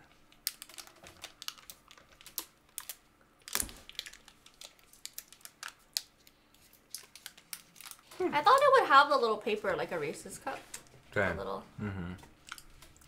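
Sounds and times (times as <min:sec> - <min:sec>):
plastic wrapper crinkling: 0:00.1 - 0:08.8.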